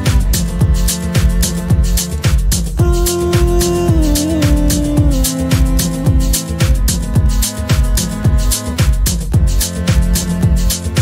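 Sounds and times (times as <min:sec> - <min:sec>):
electronic beat with deep drums: 0:00.0 - 0:11.0
hi-hats: 0:00.0 - 0:11.0.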